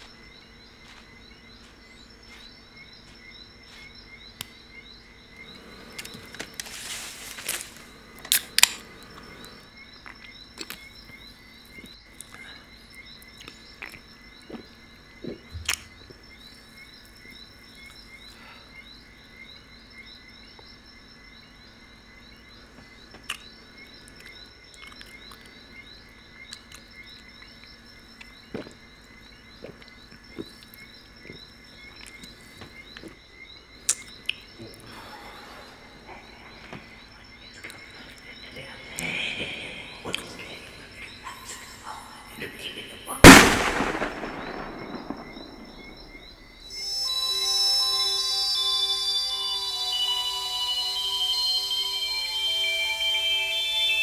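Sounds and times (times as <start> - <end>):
chirping night chorus with trill: 0.0 - 54.0
noisy rustle: 6.2 - 8.1.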